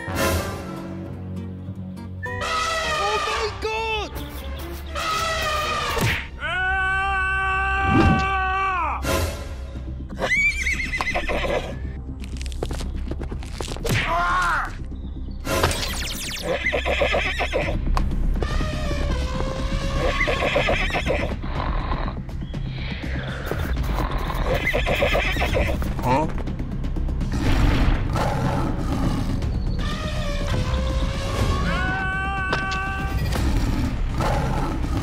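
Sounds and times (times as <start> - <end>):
background music: 0.0 - 35.0
horse whinnying: 7.8 - 8.4, 10.1 - 11.8, 16.4 - 17.8, 20.0 - 22.2.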